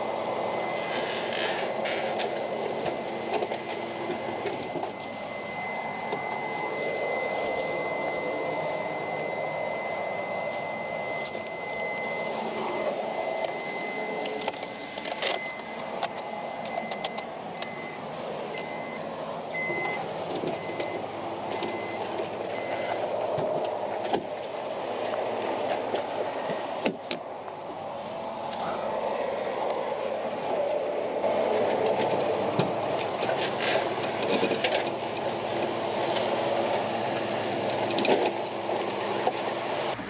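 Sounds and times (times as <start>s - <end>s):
tow truck engine running: 0.0s - 40.0s
high electronic beeps: 4.6s - 19.0s, 19.6s - 20.0s.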